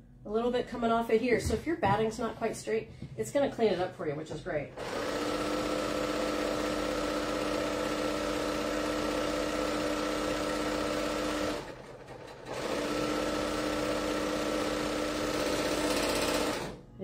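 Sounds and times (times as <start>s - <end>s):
serger sewing machine running: 4.8s - 16.8s.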